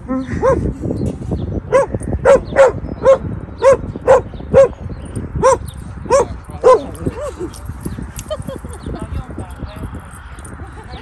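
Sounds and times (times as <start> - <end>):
dog barking: 5.4 - 6.9.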